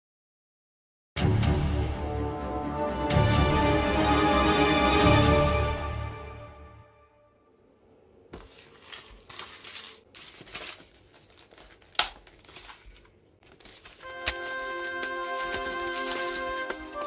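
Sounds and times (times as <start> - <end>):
music: 1.2 - 7.4, 14.0 - 17.0
plastic film crinkling and tearing: 8.4 - 17.0.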